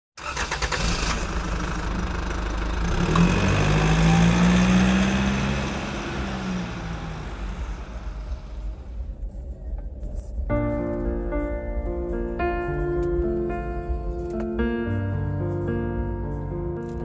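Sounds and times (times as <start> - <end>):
vehicle engine accelerating: 0.3 - 9.3
road noise hiss: 0.6 - 9.4.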